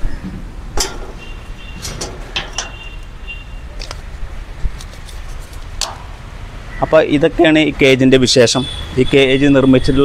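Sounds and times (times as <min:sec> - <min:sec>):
metal cage latch clicking: 0:00.8 - 0:03.2, 0:05.7 - 0:06.2.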